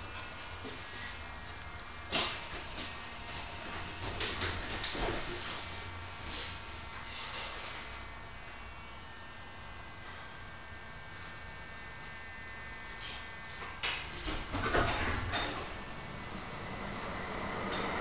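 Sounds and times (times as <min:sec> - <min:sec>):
tram electrical hum: 0:00.0 - 0:18.0
tram clanking and rumbling: 0:16.7 - 0:18.0.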